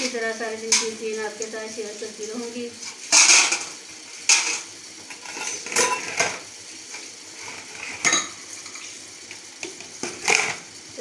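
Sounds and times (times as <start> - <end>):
steel dishes clattering: 3.0 - 6.4, 7.8 - 8.9, 10.0 - 10.6.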